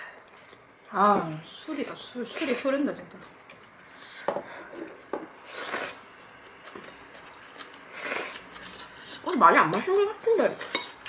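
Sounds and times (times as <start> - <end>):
slurping noodles: 5.4 - 6.1, 7.9 - 9.2.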